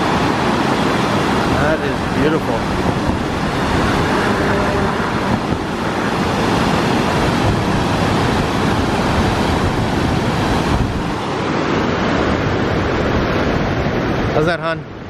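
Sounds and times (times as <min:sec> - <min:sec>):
waterfall rushing: 0:00.0 - 0:15.0.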